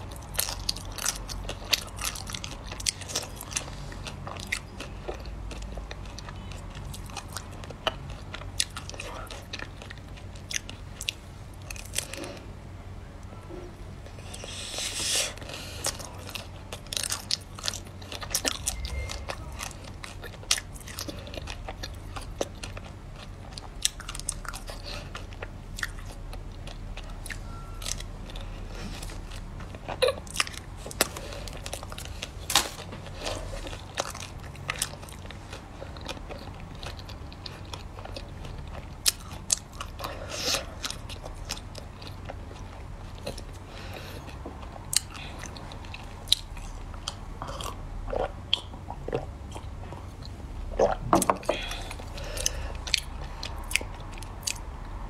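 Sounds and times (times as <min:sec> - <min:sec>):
biting frozen ice cream bar: 0:00.0 - 0:12.4
chewing frozen pieces: 0:00.0 - 0:12.6, 0:14.0 - 0:54.9.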